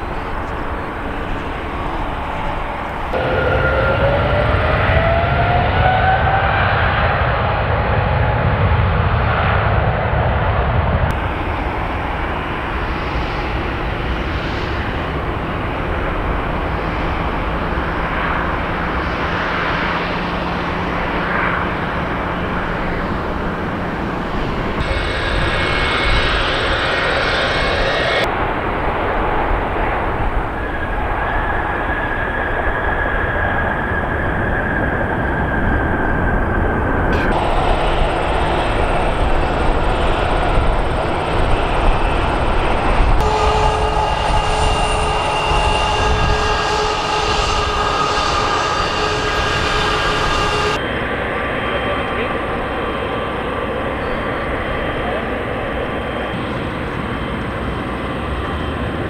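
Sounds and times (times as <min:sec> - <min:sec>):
jet engines roaring at takeoff: 0:00.0 - 0:59.0
thin high whine: 0:11.1 - 0:28.3, 0:36.9 - 0:59.0.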